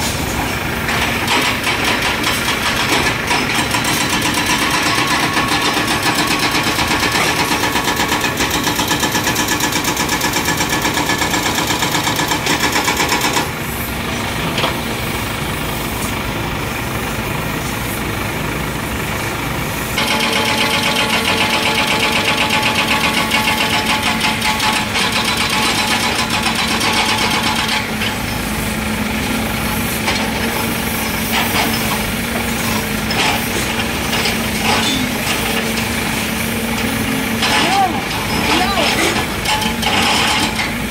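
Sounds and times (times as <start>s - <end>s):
diesel engine knocking: 0.6s - 13.7s, 14.3s - 30.6s.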